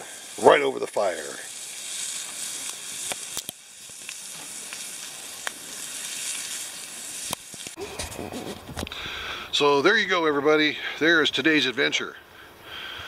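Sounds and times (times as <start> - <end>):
steaks sizzling on a griddle: 0.0 - 7.8
sharp pops: 1.9 - 9.0.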